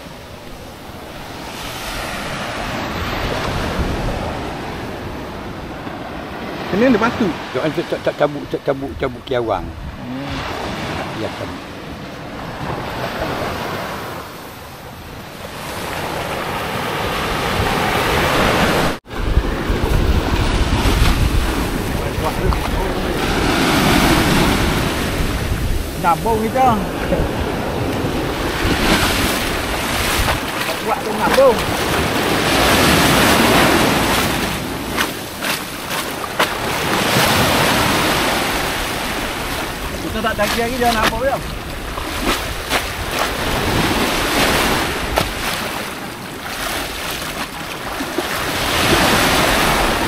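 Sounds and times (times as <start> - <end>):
surf washing onto beach: 0.0 - 9.5, 10.2 - 50.0
wind buffeting microphone: 16.3 - 50.0.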